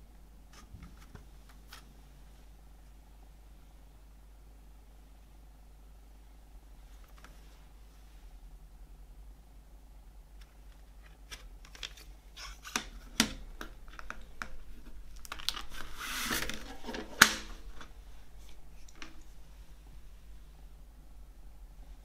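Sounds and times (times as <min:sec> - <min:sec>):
brushing rustle: 0:15.7 - 0:17.2.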